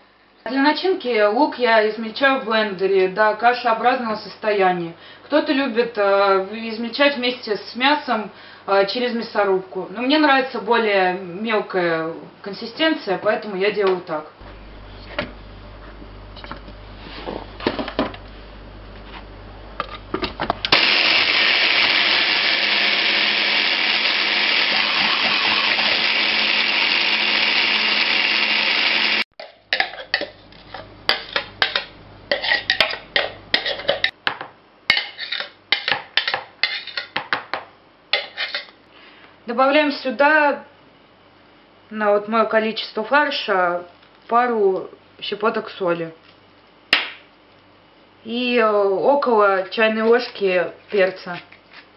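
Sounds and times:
hand blender running: 20.7 - 29.3.

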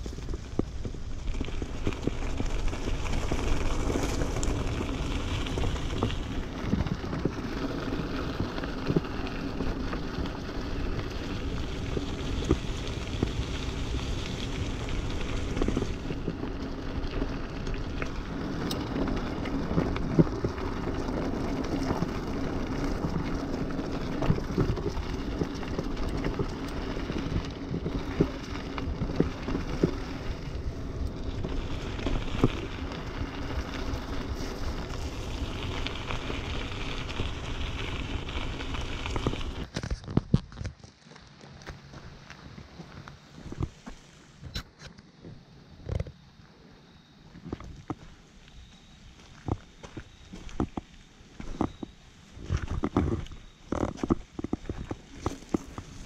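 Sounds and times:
bike tyres on gravel: 0.0 - 56.0
bike knocks and rattles: 10.9 - 41.0.

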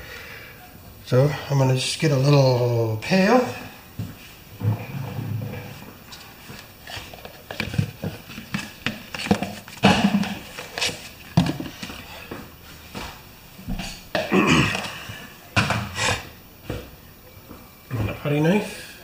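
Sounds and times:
plastic tub crackles and knocks: 7.1 - 12.0.

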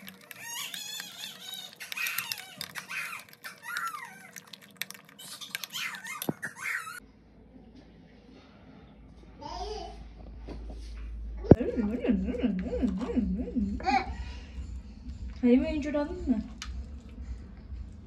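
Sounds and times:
metal spoon scraping glass bowl: 0.0 - 6.4.

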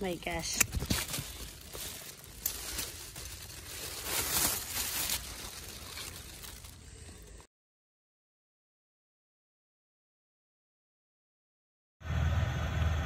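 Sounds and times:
leaves and stems rustling: 0.0 - 7.5.

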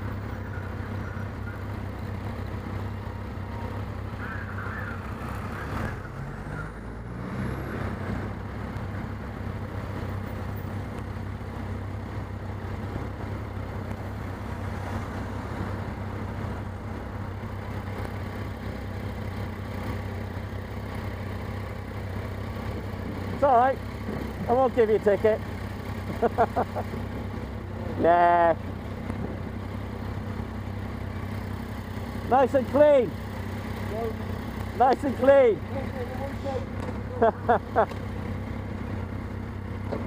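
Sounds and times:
motorcycle engine idling: 0.0 - 5.6, 28.6 - 40.0
vehicle engine pulling away: 0.0 - 40.0.

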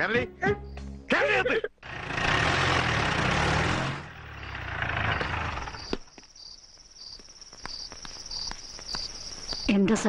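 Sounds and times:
vehicle engine passing: 1.8 - 5.9.

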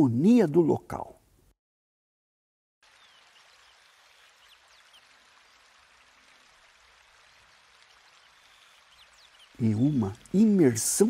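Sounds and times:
water splashing from a spout: 2.8 - 11.0
high bird chirps: 8.2 - 10.4.

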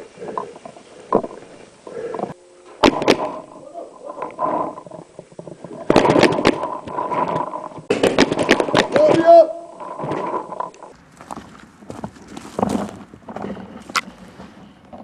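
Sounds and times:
voices: 3.4 - 5.1.

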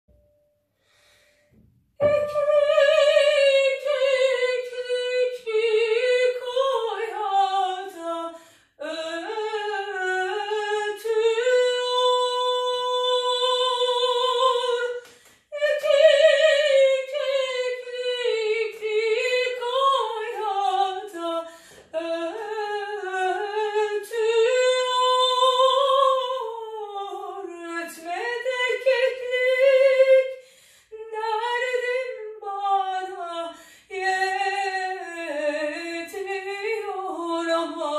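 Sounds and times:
woman singing operatically: 2.0 - 37.9
breaths between phrases: 30.4 - 30.9, 33.5 - 33.9.

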